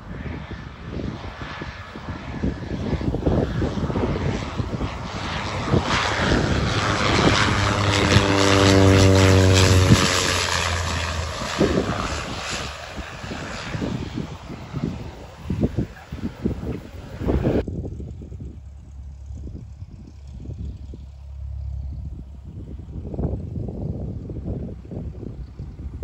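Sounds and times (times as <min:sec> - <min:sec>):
propeller aeroplane flying past: 0:00.0 - 0:26.0.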